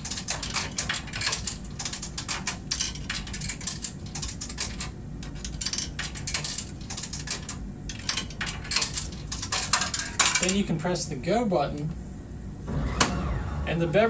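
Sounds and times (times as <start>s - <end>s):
coins clattering in vending machine: 0.0s - 10.7s.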